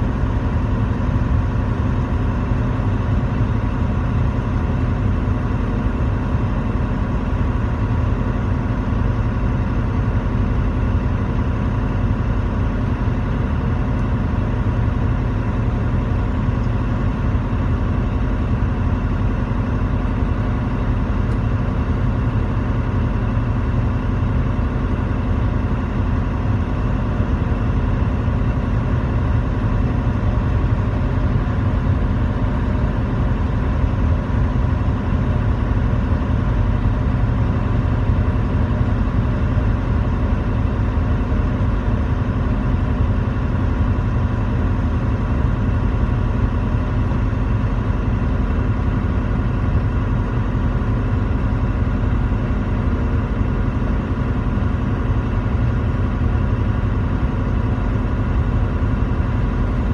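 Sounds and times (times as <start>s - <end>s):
truck engine and road noise: 0.0s - 59.9s.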